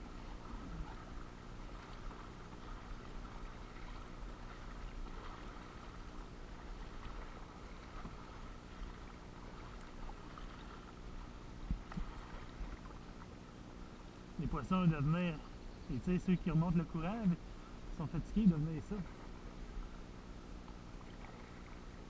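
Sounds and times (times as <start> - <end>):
paddle splashing in water: 0.0 - 14.0, 18.4 - 22.0
water lapping against hull: 0.0 - 22.0.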